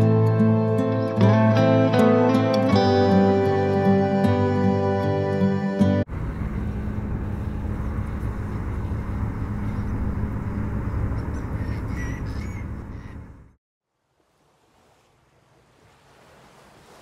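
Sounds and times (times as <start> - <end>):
low rumbling hum: 6.0 - 13.6
short bird calls: 11.1 - 13.4.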